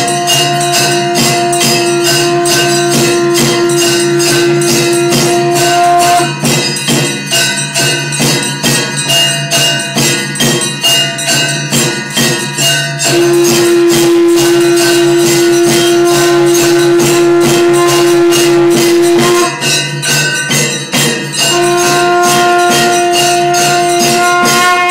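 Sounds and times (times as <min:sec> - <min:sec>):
conch shell blowing: 0:00.0 - 0:06.5, 0:13.0 - 0:19.8, 0:21.4 - 0:24.9
jangling percussion: 0:00.0 - 0:24.9
low drone: 0:13.1 - 0:19.7.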